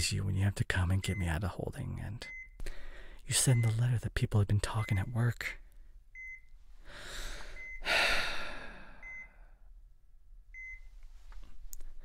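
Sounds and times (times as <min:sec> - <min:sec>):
patient monitor beeping: 0:00.8 - 0:02.7, 0:03.3 - 0:05.5, 0:06.2 - 0:06.6, 0:07.5 - 0:07.9, 0:08.9 - 0:09.5, 0:10.6 - 0:10.9
man breathing in and sighing: 0:02.6 - 0:03.2, 0:06.8 - 0:09.7.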